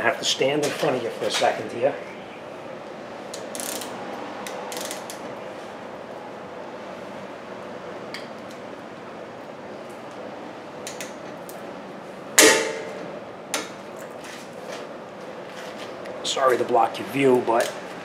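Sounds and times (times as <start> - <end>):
steady shop hum: 0.0 - 18.0
wrench metal clicks: 3.3 - 5.2
ringing metal clank: 12.4 - 13.0.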